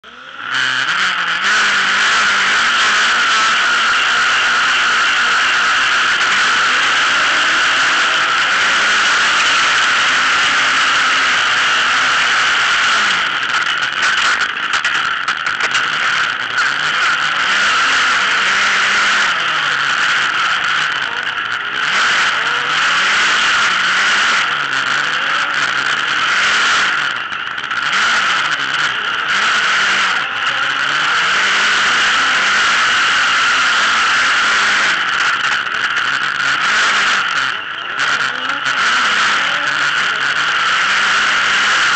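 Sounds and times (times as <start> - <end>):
buggy engine racing: 0.0 - 41.9.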